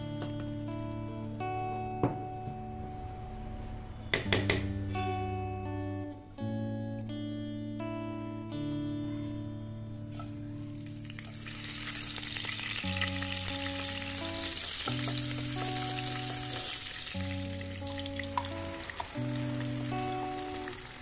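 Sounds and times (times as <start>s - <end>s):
chillies sizzling in hot oil: 10.5s - 21.0s.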